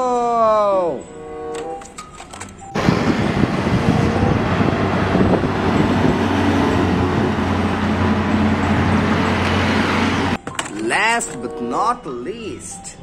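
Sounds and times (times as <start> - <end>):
traffic noise: 1.2 - 11.8
truck engine running: 2.7 - 10.4.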